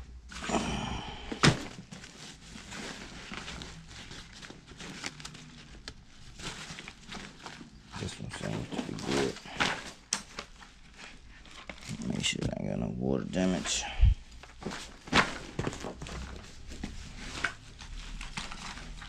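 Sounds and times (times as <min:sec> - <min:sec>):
backpacks rustling: 0:01.3 - 0:12.3.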